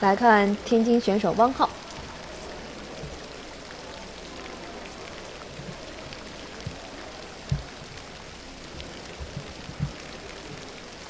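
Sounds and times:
steady hiss of falling water: 0.0 - 11.0
dull low thump: 7.5 - 8.0, 8.8 - 10.6.

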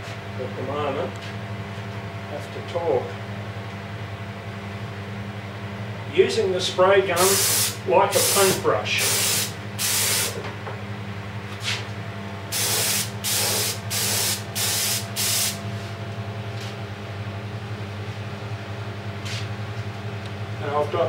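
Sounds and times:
steady low hum: 0.0 - 21.0
spray gun bursts: 7.2 - 10.4, 12.5 - 15.6.

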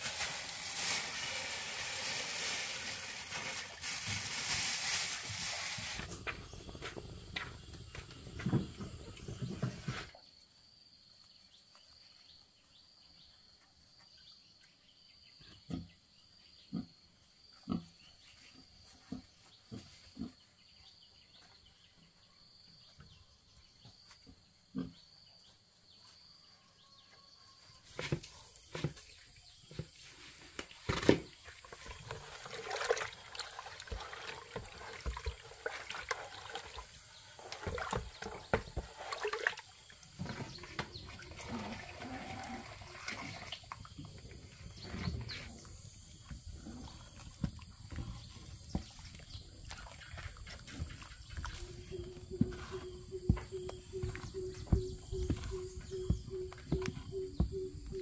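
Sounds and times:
wet feed sloshing in bucket: 29.9 - 45.3, 46.3 - 57.2.

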